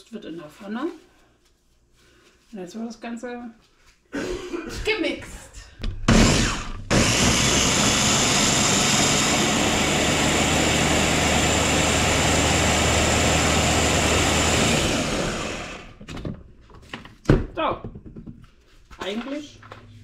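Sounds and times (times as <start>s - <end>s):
blender motor running: 6.1s - 16.0s.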